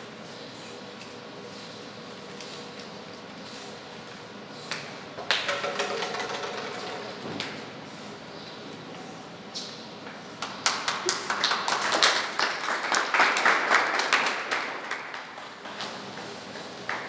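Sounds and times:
hand clapping: 4.7s - 6.6s, 10.4s - 17.0s.

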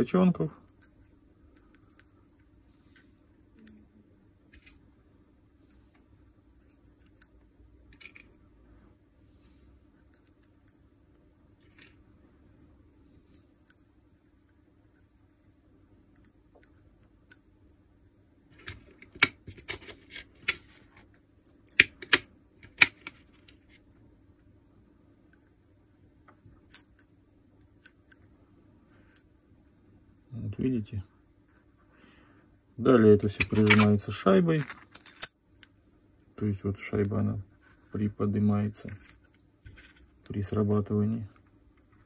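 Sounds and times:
small metal parts clicking: 34.5s - 35.4s.

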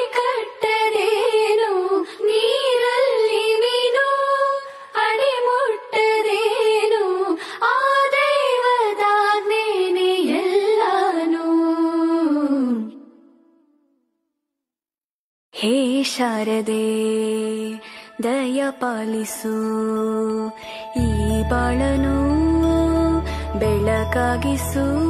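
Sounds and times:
high voice singing devotional song: 0.0s - 13.4s, 15.6s - 25.0s.

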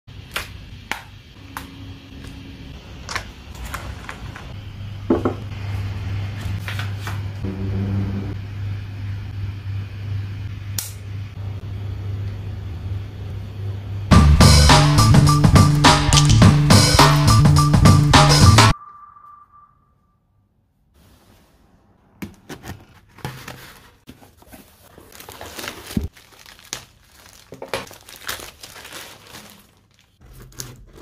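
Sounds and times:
steady low hum: 0.6s - 14.5s
music: 14.1s - 18.8s.

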